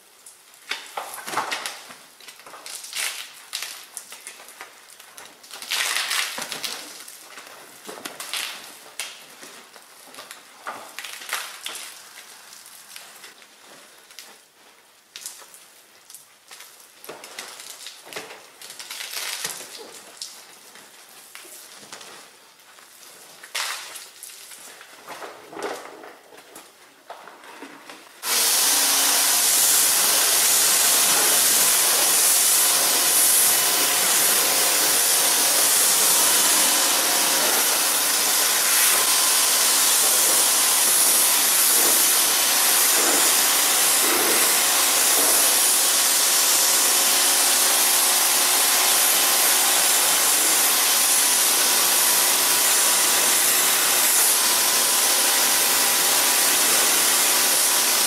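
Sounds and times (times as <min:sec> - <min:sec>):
pressure washer spraying water: 0:28.2 - 0:58.0.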